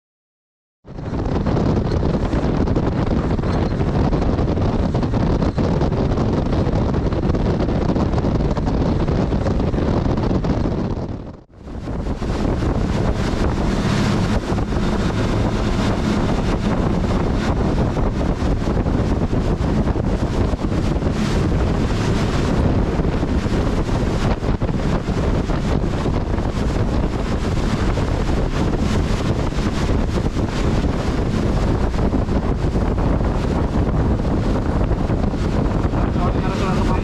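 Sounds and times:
wind buffeting microphone: 0.8s - 37.0s
engine hum: 0.9s - 37.0s
rushing water and spray: 11.5s - 37.0s.

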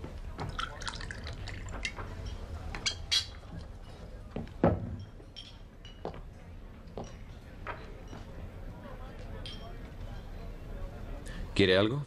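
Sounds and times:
whiskey pouring into shot glass: 0.6s - 1.6s
sharp glass clinks: 5.0s - 6.1s.

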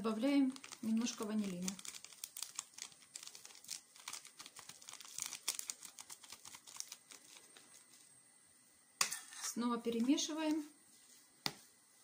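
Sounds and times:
paper sachet crinkling: 0.0s - 8.1s.

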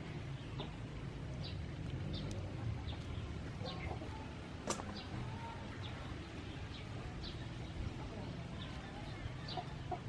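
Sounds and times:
birds chirping: 0.0s - 10.0s
steady low rumble: 0.0s - 10.0s
sharp click: 4.6s - 5.0s.

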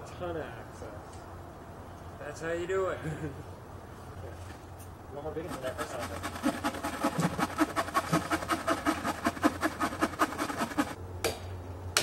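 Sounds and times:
hand saw cutting log: 5.5s - 11.0s.

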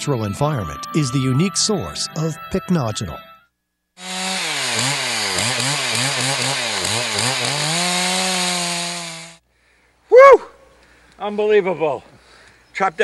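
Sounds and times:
chainsaw cutting wood: 4.0s - 9.4s.

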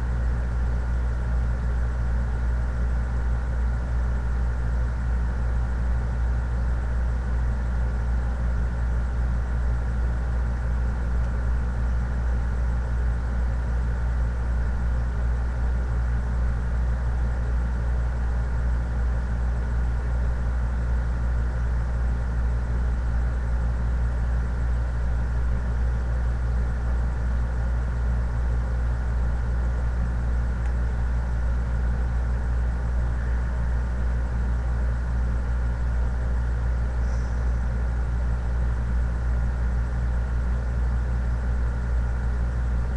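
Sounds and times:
steady low hum: 0.0s - 42.9s.

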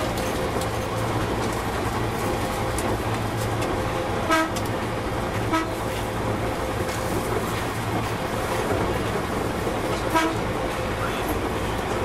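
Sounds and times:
train rumbling on track: 0.0s - 12.0s
train horn toots: 4.2s - 4.7s, 5.4s - 6.0s, 10.0s - 10.6s.

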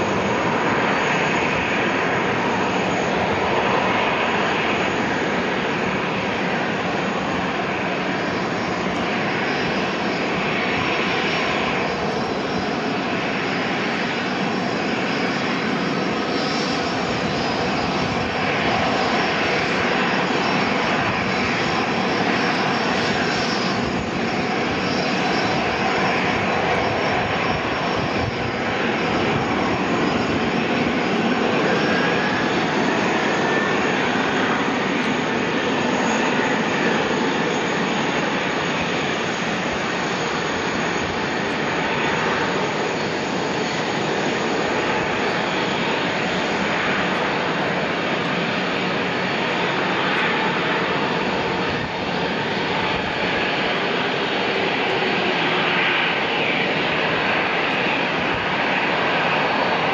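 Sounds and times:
jet engines at taxi thrust: 0.0s - 59.9s.

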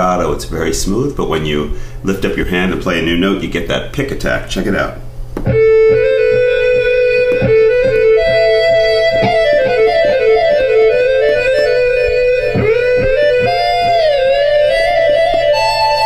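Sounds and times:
synthesizer guitar-like lead notes: 5.4s - 16.0s.

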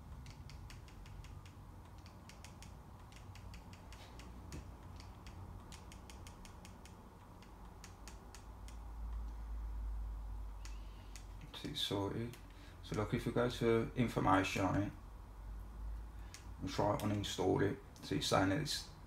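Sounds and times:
controller buttons clicking: 0.0s - 9.4s.

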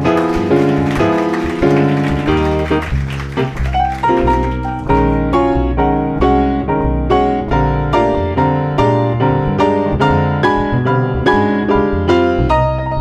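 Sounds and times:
jazz piano: 0.0s - 13.0s
upright bass: 0.0s - 13.0s.

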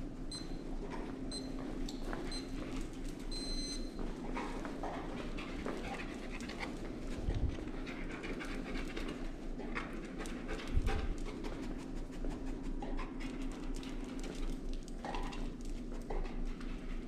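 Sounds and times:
dog panting: 4.2s - 14.4s.

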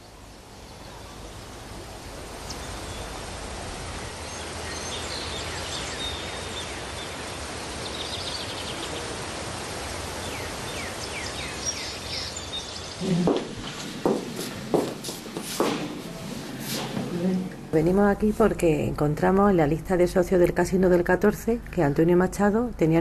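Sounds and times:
background hiss: 0.0s - 23.0s
small birds chirping: 4.0s - 9.2s, 9.8s - 14.6s.

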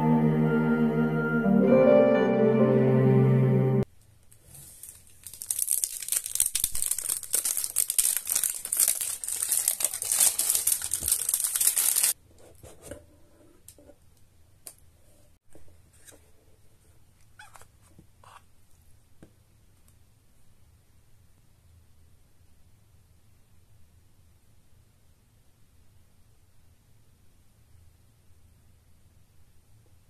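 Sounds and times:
cellophane crinkling and tearing: 4.3s - 12.2s.

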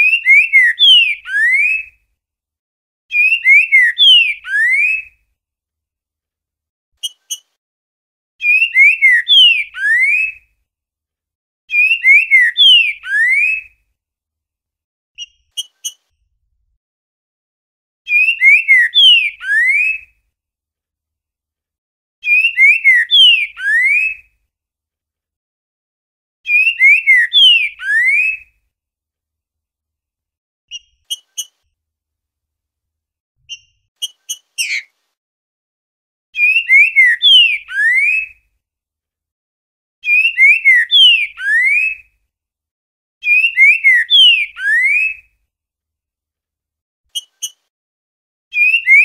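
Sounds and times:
bird whistling song phrases: 0.0s - 1.9s, 3.1s - 5.2s, 8.4s - 10.4s, 11.7s - 13.8s, 18.1s - 20.1s, 22.2s - 24.3s, 26.5s - 28.5s, 36.4s - 38.4s, 40.0s - 42.1s, 43.2s - 45.3s, 48.5s - 49.0s.

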